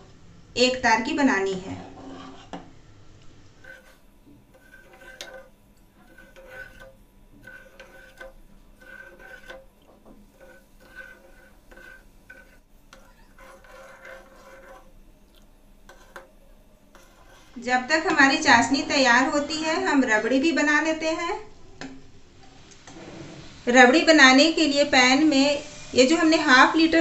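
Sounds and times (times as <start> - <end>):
ladle scraping pan bottom: 1.6 - 2.7, 3.5 - 15.1, 15.8 - 19.6.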